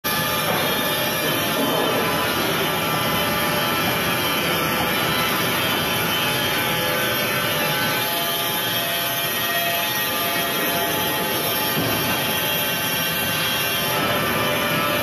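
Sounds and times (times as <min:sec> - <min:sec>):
band sawmill cutting log: 0:00.1 - 0:15.0.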